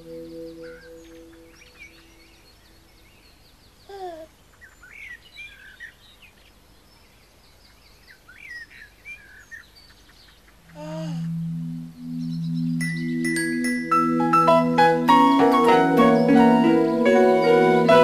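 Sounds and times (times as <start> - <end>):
birds chirping: 0.0 - 18.0
falling vocal sound: 10.7 - 11.9.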